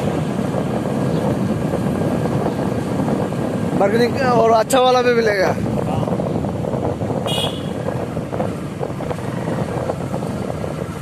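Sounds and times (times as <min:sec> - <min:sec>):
road noise: 0:00.0 - 0:11.0
wind on microphone: 0:00.0 - 0:11.0
motorcycle engine: 0:05.6 - 0:11.0.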